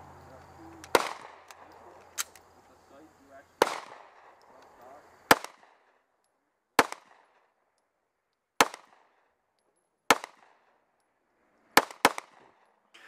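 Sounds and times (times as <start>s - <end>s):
pistol shots with echo: 0.7s - 2.4s, 3.6s - 4.6s, 5.2s - 6.1s, 6.7s - 7.7s, 8.5s - 9.4s, 10.1s - 10.9s, 11.8s - 12.8s.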